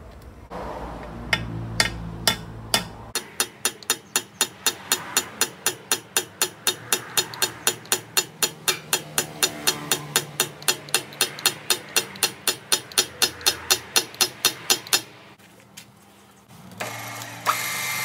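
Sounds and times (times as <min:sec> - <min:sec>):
rapid metal-on-metal taps: 0:01.3 - 0:15.1.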